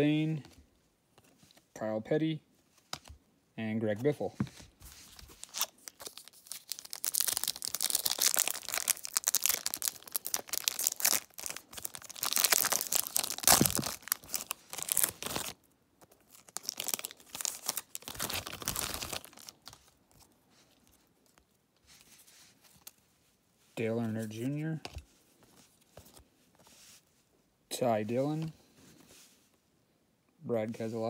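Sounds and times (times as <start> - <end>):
foil wrapper crinkling: 5.2 - 19.9.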